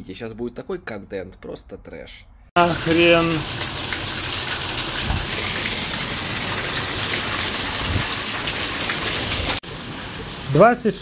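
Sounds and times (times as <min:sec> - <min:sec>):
water pouring and splashing on floor: 0:02.6 - 0:11.0.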